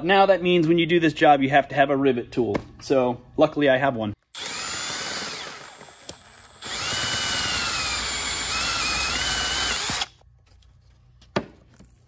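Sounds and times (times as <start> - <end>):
electric drill whining: 4.4 - 10.2.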